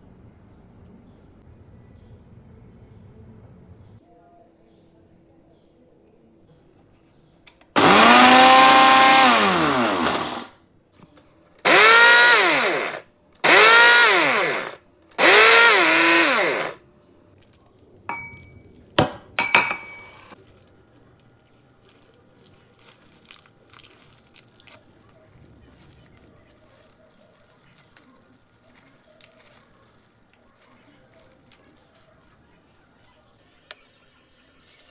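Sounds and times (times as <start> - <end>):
blender motor pulsing: 7.8 - 10.5, 11.6 - 16.8.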